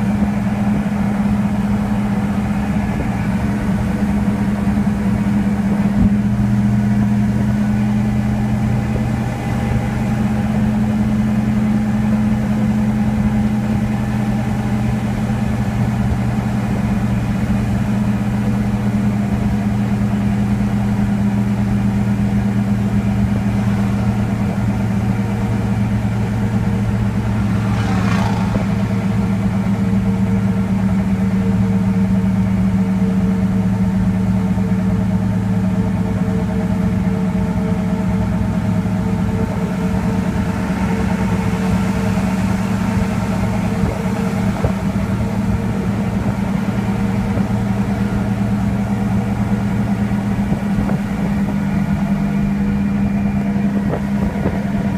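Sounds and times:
diesel engine drone under load: 0.0 - 54.9.

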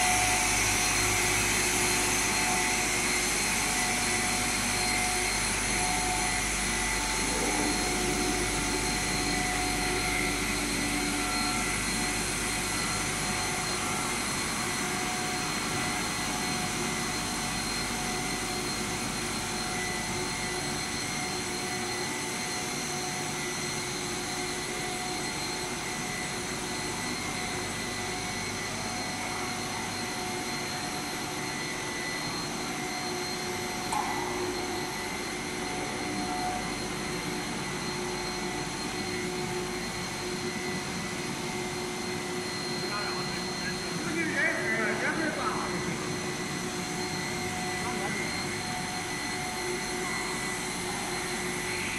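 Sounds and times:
machine motors and pumps: 0.0 - 51.9
steady whining tones: 0.0 - 51.9
low hum: 5.8 - 11.7.

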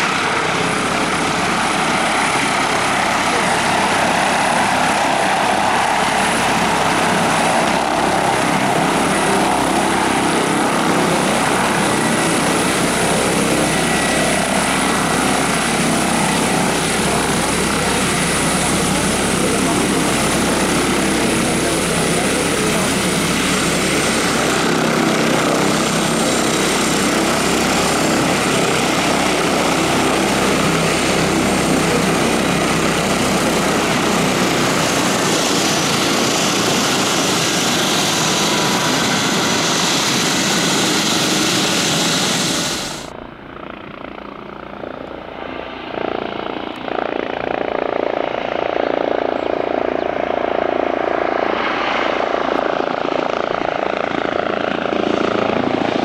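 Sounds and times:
helicopter rotor and turbine noise: 0.0 - 56.0.

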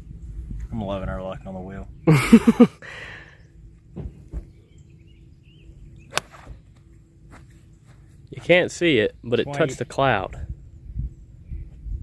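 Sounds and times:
golf club striking ball: 6.1 - 6.8.

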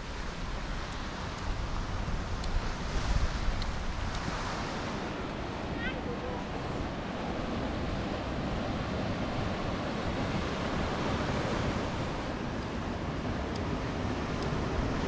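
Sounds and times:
surf washing onto beach: 0.0 - 15.0.

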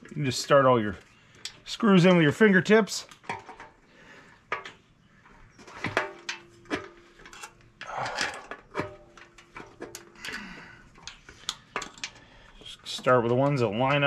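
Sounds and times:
metal plate clicks and knocks: 5.6 - 10.4, 11.0 - 12.2.

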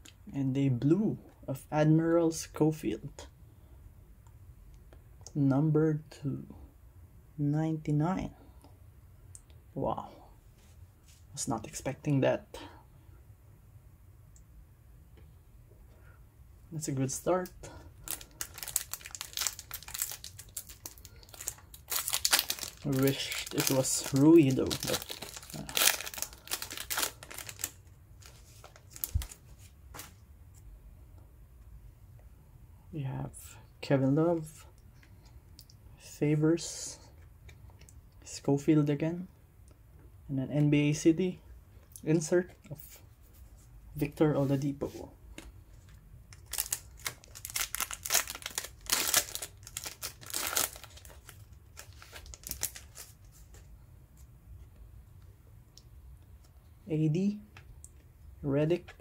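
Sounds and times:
foil wrapper crinkling: 18.0 - 30.1, 46.3 - 53.4.

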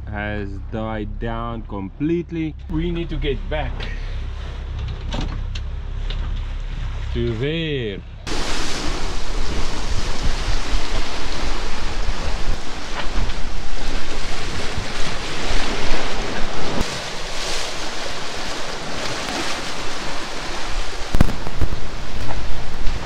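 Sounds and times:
waves splashing against hull: 1.4 - 23.0
wind buffeting microphone: 8.1 - 23.0.

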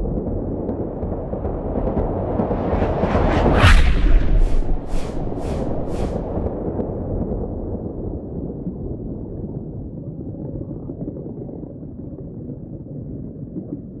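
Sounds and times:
low rumbling sound effect: 2.3 - 6.6.

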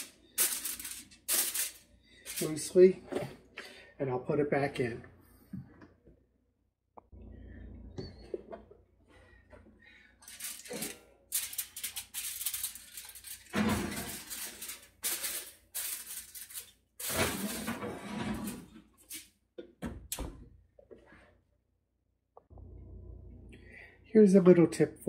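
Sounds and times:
aluminium foil crinkling: 0.0 - 2.7, 10.2 - 18.0.

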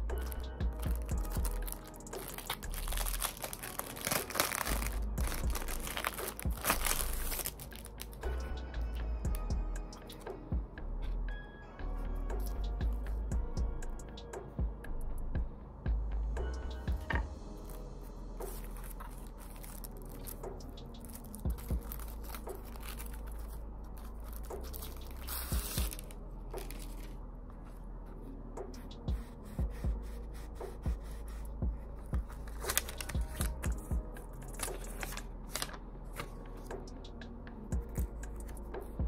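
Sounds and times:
steady low hum: 0.0 - 39.0
paper and tissue crinkling: 0.2 - 8.2, 18.4 - 27.8, 32.2 - 33.7, 34.4 - 36.7.

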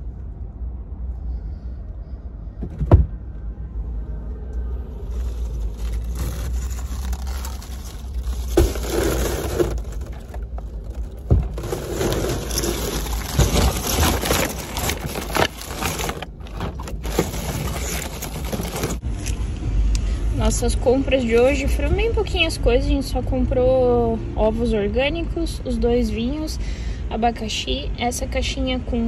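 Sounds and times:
objects rustling and clattering: 5.0 - 19.0.

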